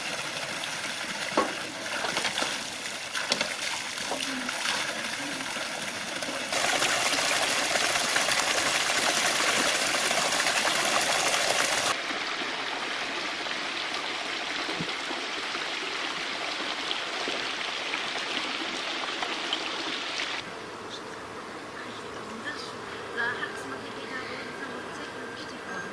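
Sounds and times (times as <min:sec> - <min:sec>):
water gushing from a tap: 0:00.0 - 0:12.0.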